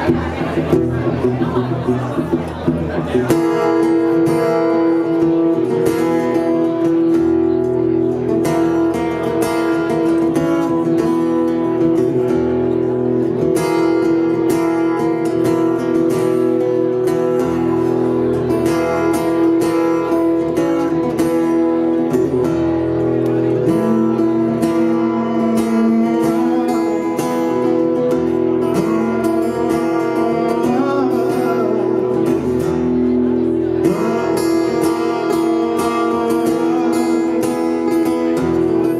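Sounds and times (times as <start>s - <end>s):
acoustic guitar strumming: 0.0s - 38.9s.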